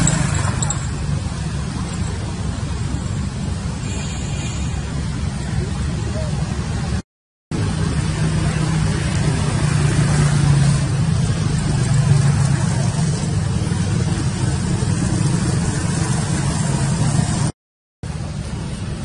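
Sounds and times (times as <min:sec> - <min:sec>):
broad rushing noise: 0:00.0 - 0:19.0
vehicle engine humming: 0:00.0 - 0:19.0.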